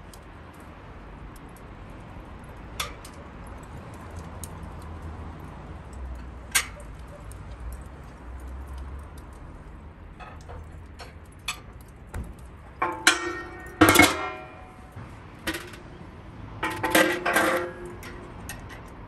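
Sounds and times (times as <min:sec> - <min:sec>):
metal clanks from steel drum: 0:12.7 - 0:16.0, 0:16.6 - 0:18.7.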